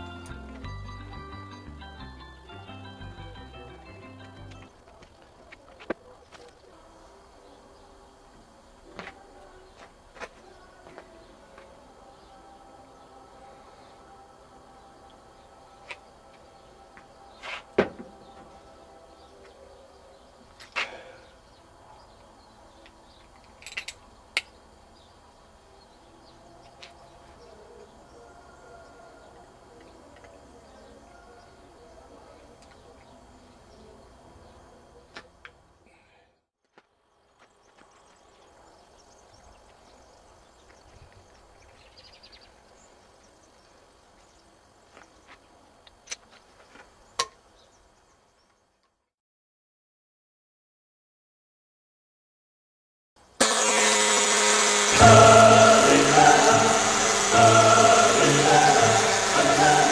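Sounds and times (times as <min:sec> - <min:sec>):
rattle of clicks: 0:23.2 - 0:24.5
short high trill: 0:53.4 - 0:59.9.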